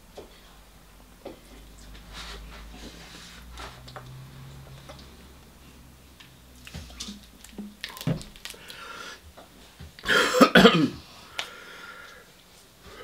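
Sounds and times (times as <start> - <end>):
man coughing hard: 10.0 - 11.0.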